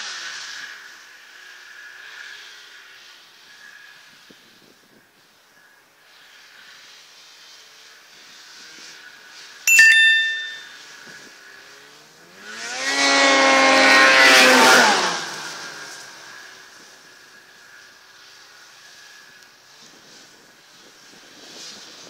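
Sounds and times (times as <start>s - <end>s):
snowmobile engine passing by: 0.0s - 9.6s, 11.4s - 22.0s
sharp click with ringing tone: 9.7s - 10.8s.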